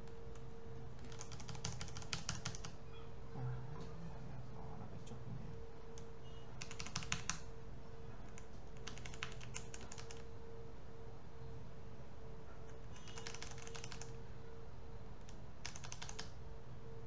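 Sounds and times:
steady hum: 0:00.0 - 0:17.0
computer keyboard clattering: 0:01.0 - 0:02.8, 0:06.6 - 0:07.4, 0:08.3 - 0:10.2, 0:12.8 - 0:14.1, 0:15.2 - 0:16.3.

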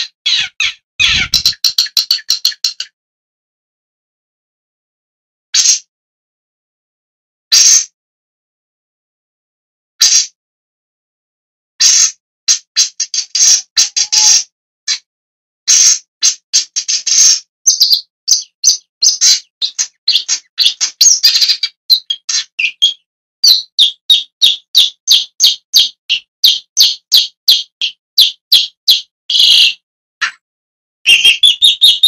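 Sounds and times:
shrike harsh calls: 0:00.3 - 0:01.6.

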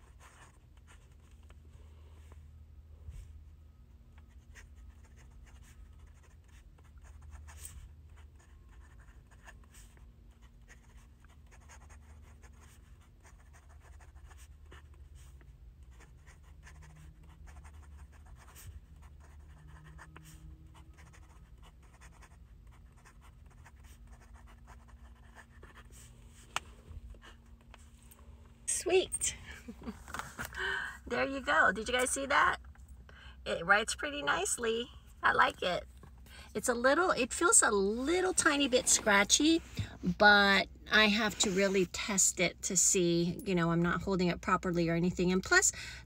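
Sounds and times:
fountain pen scratching on paper: 0:00.0 - 0:01.4, 0:04.3 - 0:26.6
steady low hum: 0:00.0 - 0:46.0.

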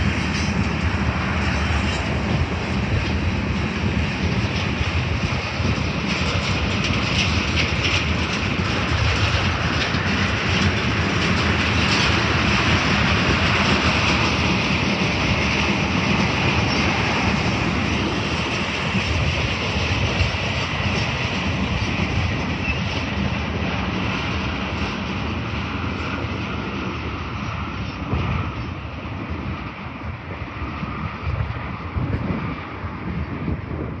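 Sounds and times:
train wheels clicking: 0:00.0 - 0:27.0
freight train rolling past: 0:00.0 - 0:34.0.

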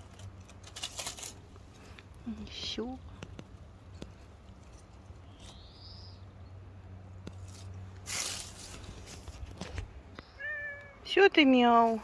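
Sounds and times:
dry leaves rustling: 0:00.0 - 0:02.8, 0:07.3 - 0:10.8.

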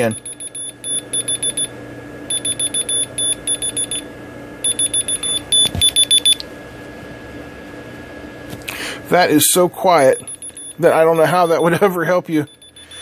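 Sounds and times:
rapid high-pitched beeps: 0:00.0 - 0:01.7, 0:02.3 - 0:04.0, 0:04.7 - 0:06.4, 0:10.1 - 0:11.8.

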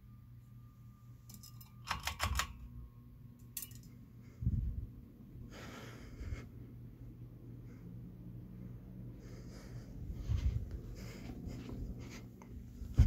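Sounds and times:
ceiling fan motor humming: 0:00.0 - 0:13.0
metallic clicks and rattles: 0:01.3 - 0:02.7, 0:03.4 - 0:04.0.

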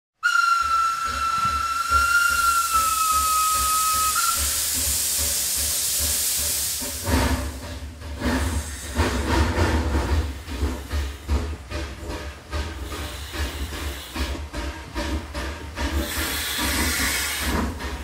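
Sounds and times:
steam locomotive whistle: 0:00.2 - 0:04.8
locomotive chuffing: 0:00.2 - 0:18.0
steam hissing: 0:00.2 - 0:18.0.

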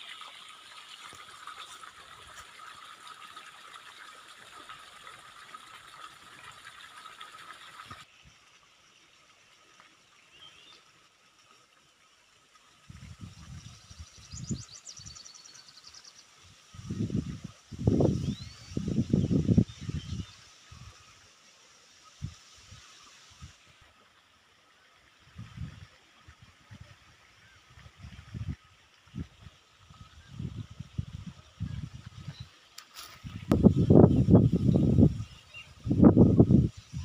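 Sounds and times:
wind buffeting microphone: 0:12.9 - 0:14.6, 0:16.7 - 0:20.9, 0:29.2 - 0:32.5, 0:33.2 - 0:37.0
steady hiss: 0:13.9 - 0:24.4.

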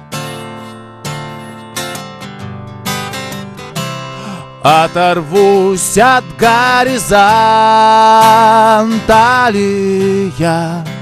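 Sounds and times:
acoustic guitar strumming: 0:00.0 - 0:11.0
man singing: 0:04.3 - 0:11.0.

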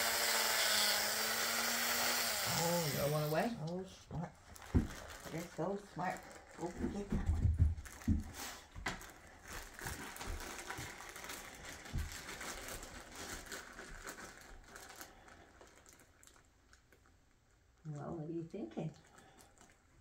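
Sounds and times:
plastic bag crinkling: 0:04.4 - 0:17.9, 0:19.0 - 0:20.0.

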